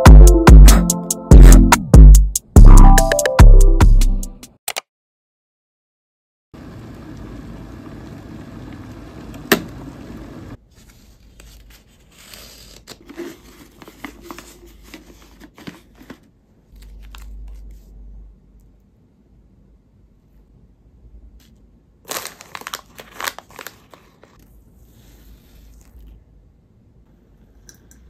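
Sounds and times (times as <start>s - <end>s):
foil bag crinkling: 22.0s - 24.4s.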